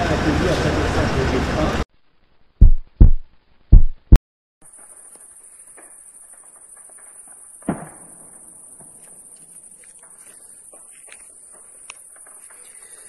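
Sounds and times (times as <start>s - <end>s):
heavy thumps: 2.6s - 4.2s.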